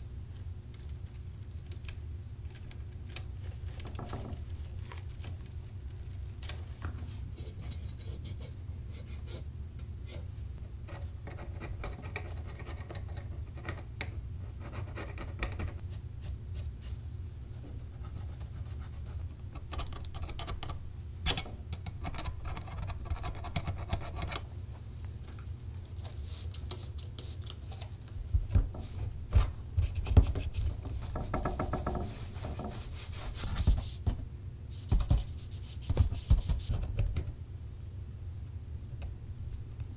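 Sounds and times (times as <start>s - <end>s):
steady low hum: 0.0s - 39.9s.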